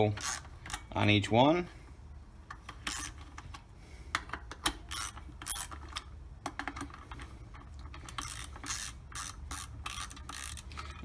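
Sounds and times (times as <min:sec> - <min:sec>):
hand ratchet clicking: 0:00.1 - 0:00.9, 0:02.5 - 0:03.4, 0:04.1 - 0:11.0.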